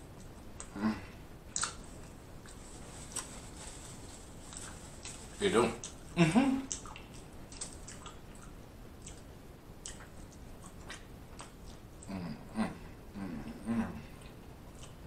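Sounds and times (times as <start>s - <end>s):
chewing with wet smacks: 1.5s - 2.6s, 6.6s - 12.2s, 14.2s - 15.0s.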